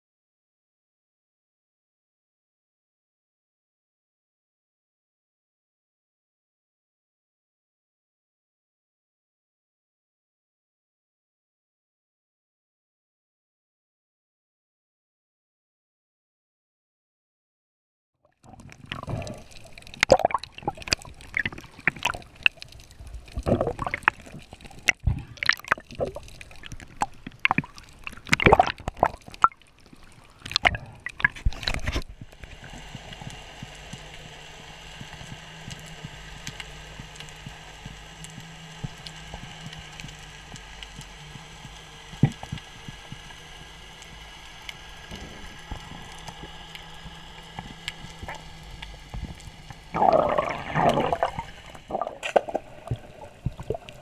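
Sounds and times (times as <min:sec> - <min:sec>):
bubbling: 0:18.4 - 0:54.0
underwater splashing: 0:18.5 - 0:54.0
steady low hum: 0:18.9 - 0:54.0
faint high whine: 0:31.5 - 0:54.0.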